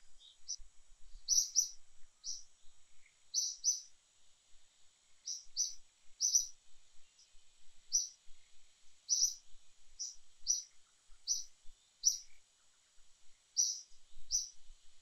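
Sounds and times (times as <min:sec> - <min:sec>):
bird chirping: 0:00.0 - 0:00.6, 0:01.2 - 0:04.0, 0:05.2 - 0:08.2, 0:09.0 - 0:14.6
faint high-pitched hiss: 0:00.0 - 0:15.0.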